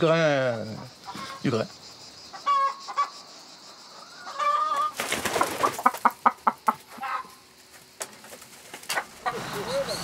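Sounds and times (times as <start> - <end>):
hen clucking: 0.8 - 1.5, 2.3 - 3.2, 3.9 - 5.0, 5.6 - 7.4, 8.9 - 10.0.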